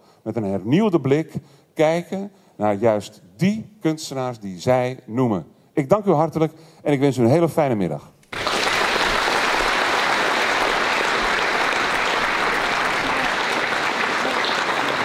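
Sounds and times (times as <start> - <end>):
audience applauding: 8.3 - 15.0.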